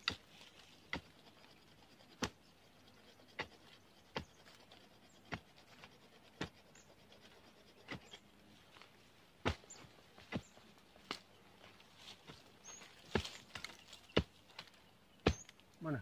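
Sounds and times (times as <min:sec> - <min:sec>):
digging tool striking soil: 0:00.0 - 0:01.1, 0:09.4 - 0:11.3, 0:12.2 - 0:15.6.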